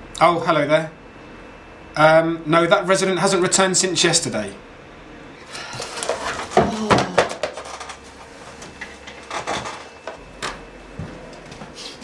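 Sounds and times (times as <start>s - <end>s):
items knocking on a desk: 6.0s - 8.0s.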